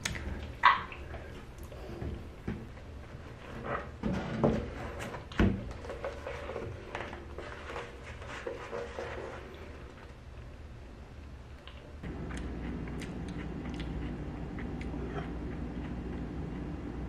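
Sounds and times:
household knocks and clatters: 0:03.5 - 0:07.7.

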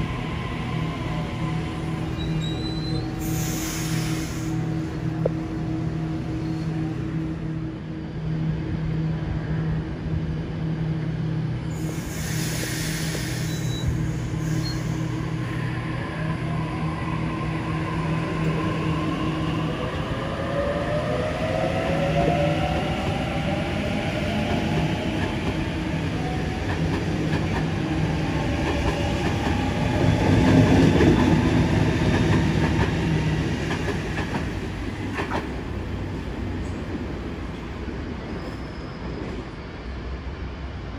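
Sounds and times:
train wheels clattering on rails: 0:28.6 - 0:35.6.

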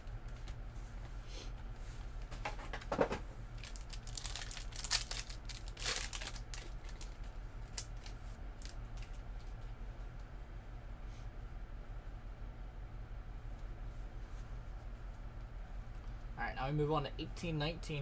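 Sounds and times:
steady low hum: 0:00.0 - 0:18.0
cards clicking and rustling: 0:02.4 - 0:09.6
card pack wrappers crinkling: 0:03.6 - 0:09.5.

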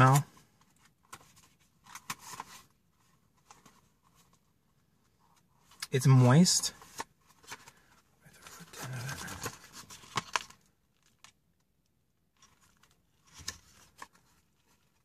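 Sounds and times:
paper rustling and crinkling: 0:00.0 - 0:04.5, 0:06.7 - 0:11.4, 0:12.4 - 0:15.0.

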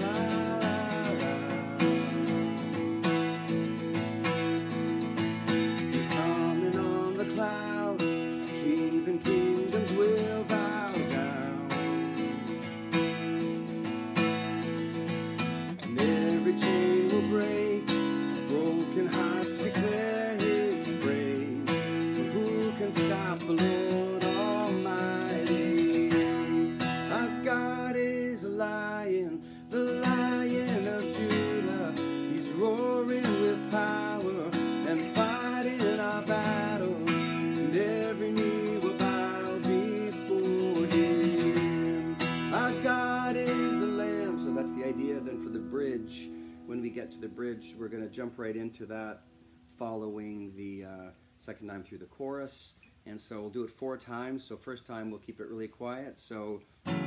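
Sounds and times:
man singing: 0:00.0 - 0:03.4, 0:05.5 - 0:12.5, 0:15.7 - 0:49.1
acoustic guitar strumming: 0:00.0 - 0:50.8, 0:56.8 - 0:57.0.

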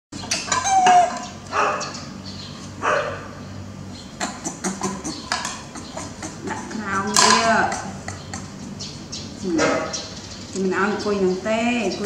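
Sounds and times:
baby monkey calling: 0:00.2 - 0:03.2, 0:03.9 - 0:12.0
plate clicking and knocking: 0:04.2 - 0:08.5.

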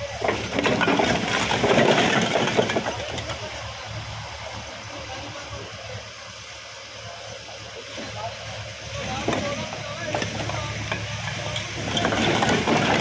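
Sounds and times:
bricks clattering together: 0:00.0 - 0:03.6, 0:09.0 - 0:13.0
tractor diesel engine idling: 0:00.0 - 0:13.0.

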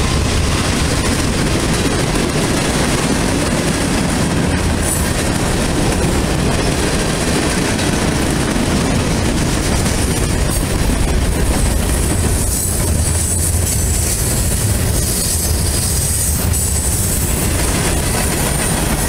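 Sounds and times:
train wheels running on rails: 0:00.0 - 0:19.0.

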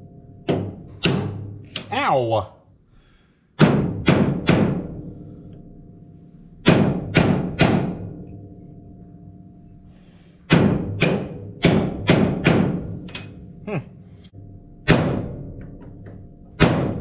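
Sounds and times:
hammer striking steel punch: 0:00.5 - 0:01.9, 0:03.6 - 0:04.9, 0:06.6 - 0:08.1, 0:10.5 - 0:13.3, 0:14.8 - 0:15.3, 0:16.6 - 0:17.0.

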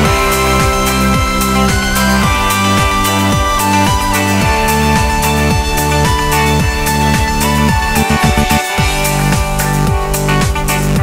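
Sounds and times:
electronic music with steady beat: 0:00.0 - 0:11.0
rapid drum strokes: 0:07.0 - 0:09.6.

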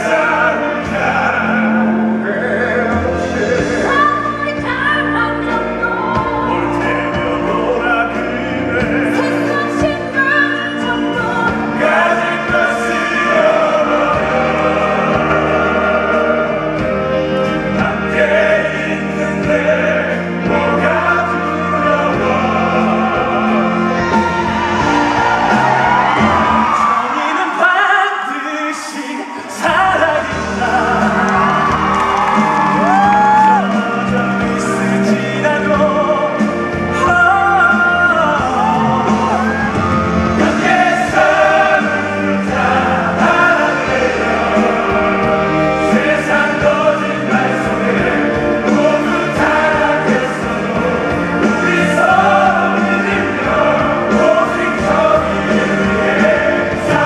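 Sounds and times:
man singing into a microphone: 0:00.0 - 0:03.9
instrumental accompaniment: 0:29.7 - 0:57.0.

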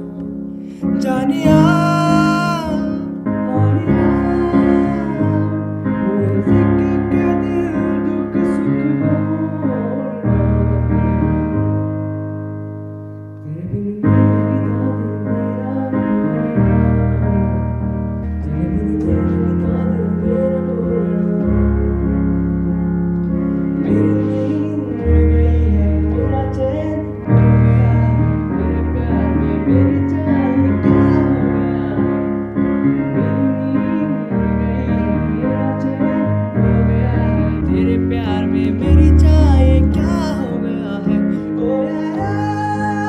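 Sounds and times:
electronic keyboard piano music: 0:00.0 - 0:43.0.

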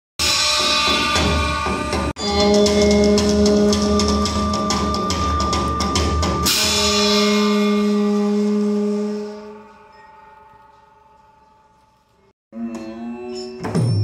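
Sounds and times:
drums beating fast rhythm: 0:00.2 - 0:07.7
hand cymbals crashing: 0:00.2 - 0:10.4
held low note: 0:02.2 - 0:10.4.

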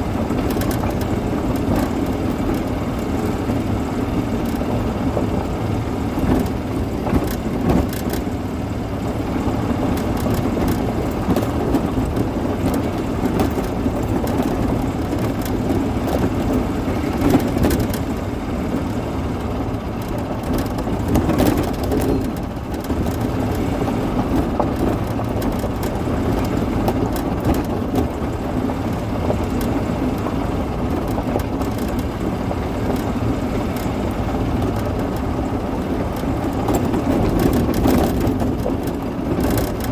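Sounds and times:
golf cart drone: 0:00.0 - 0:39.9
tyres on gravel: 0:00.0 - 0:39.9
clicks and rattles: 0:00.2 - 0:08.5, 0:09.6 - 0:39.9.

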